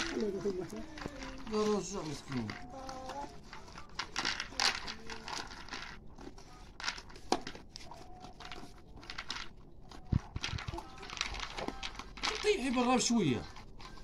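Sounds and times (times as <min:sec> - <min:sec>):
animals crunching dry kibble: 0:00.0 - 0:14.0.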